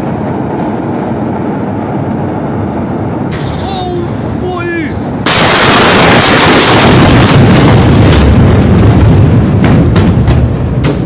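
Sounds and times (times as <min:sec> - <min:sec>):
explosion shockwave rumble: 0:00.0 - 0:11.0
sharp cracks: 0:05.2 - 0:11.0.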